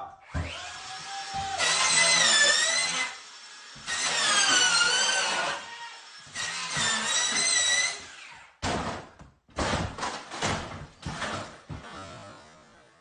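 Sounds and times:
power drill whirring: 0:00.4 - 0:08.6.

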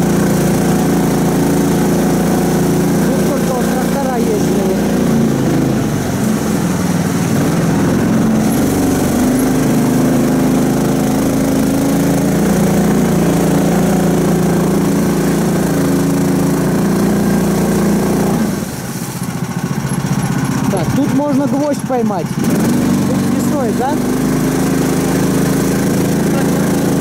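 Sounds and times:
vehicle engine running: 0:00.0 - 0:27.0.

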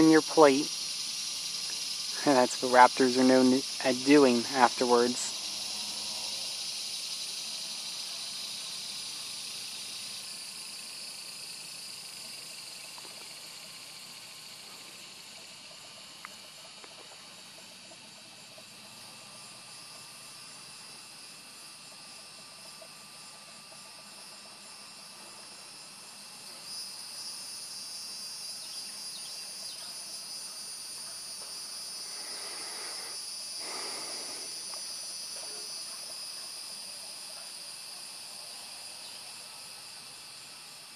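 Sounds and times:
insects buzzing and trilling: 0:00.0 - 0:40.9.

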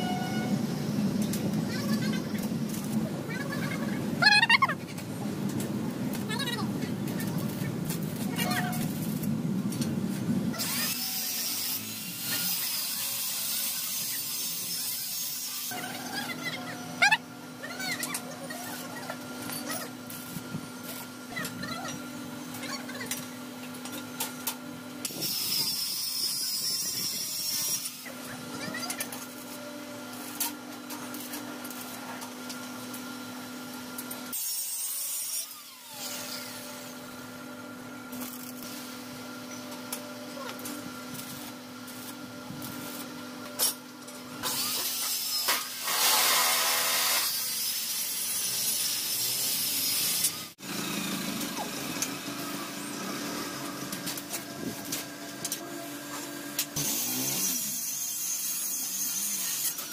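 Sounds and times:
power tool on steel tubing: 0:10.6 - 0:16.4, 0:22.4 - 0:37.3, 0:38.1 - 0:59.9.

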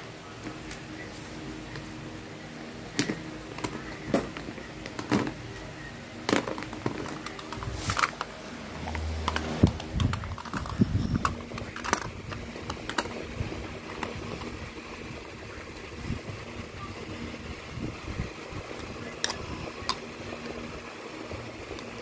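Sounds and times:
plastic toys clicking and knocking: 0:06.2 - 0:13.2, 0:18.8 - 0:20.1.

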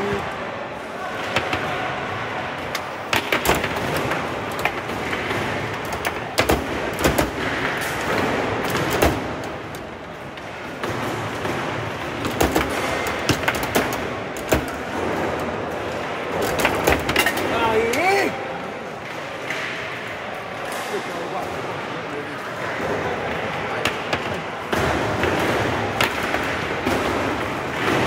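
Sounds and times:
background noise: 0:00.0 - 0:28.0
foosball figures striking ball: 0:01.1 - 0:17.6, 0:22.6 - 0:28.0
foosball rods clacking: 0:02.6 - 0:18.1, 0:23.7 - 0:28.0.

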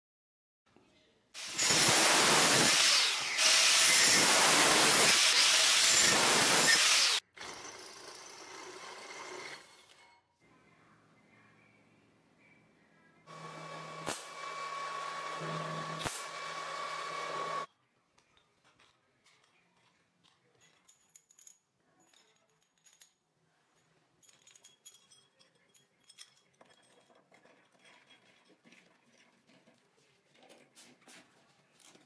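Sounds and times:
grinder cutting metal: 0:01.4 - 0:10.0, 0:13.3 - 0:17.7
metallic clinks and ticks: 0:18.4 - 0:29.4.

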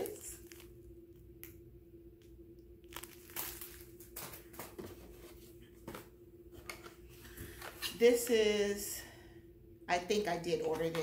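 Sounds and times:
packaging crinkling: 0:00.0 - 0:01.5, 0:02.8 - 0:04.8
faint steady hum: 0:00.0 - 0:11.0.

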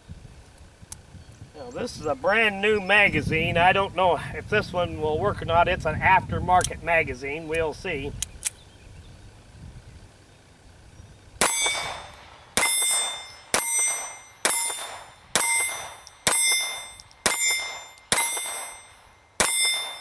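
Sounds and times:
pistol shots: 0:11.4 - 0:20.0
ringing tone after shots: 0:11.4 - 0:20.0.

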